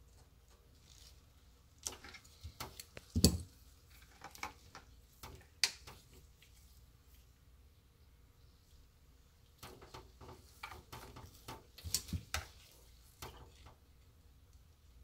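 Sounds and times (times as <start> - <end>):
clicks and rustles of wires: 0.0 - 6.7, 9.5 - 13.9.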